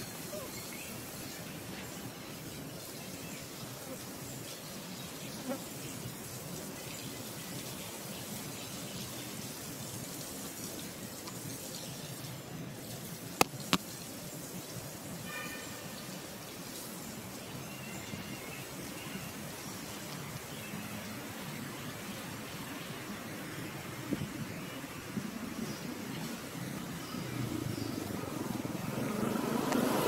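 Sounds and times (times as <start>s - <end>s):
brief high call: 15.2s - 16.0s.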